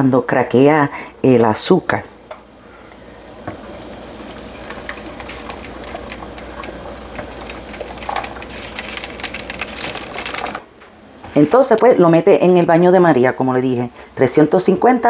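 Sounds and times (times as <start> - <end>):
caramel crackling: 1.9 - 12.0
liquid pouring: 3.3 - 10.6.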